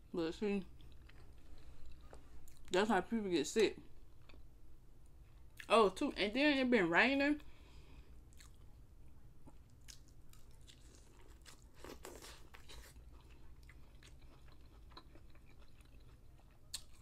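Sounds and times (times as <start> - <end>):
chewing corn on the cob: 9.4 - 17.0.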